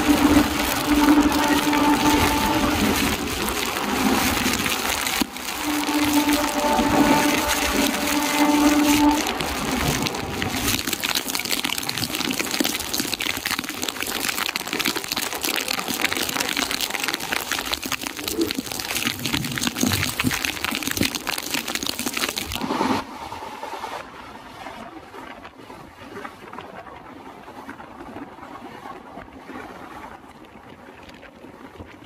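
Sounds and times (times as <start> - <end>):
train running: 0.0 - 10.9
heavy rain pouring: 0.0 - 22.7
wind: 0.0 - 32.0.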